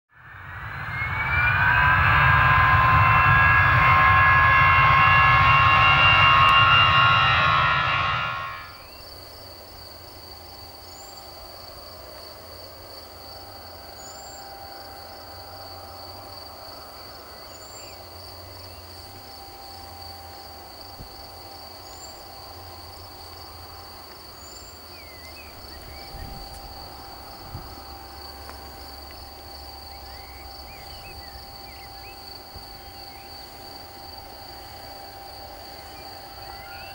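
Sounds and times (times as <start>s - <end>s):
intro sound effect with rising tones: 0.1s - 9.0s
faint jet engine whine: 0.1s - 36.9s
pulsing insect trill: 0.2s - 36.9s.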